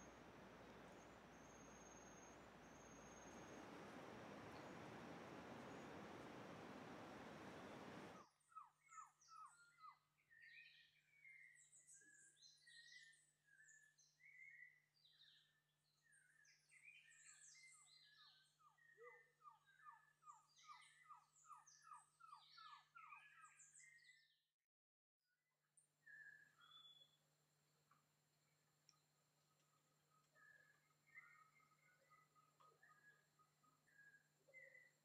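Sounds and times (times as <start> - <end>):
birds chirping and trilling: 0.0 - 8.2
descending whistled bird notes: 0.0 - 8.2
faint low hum: 0.0 - 8.2.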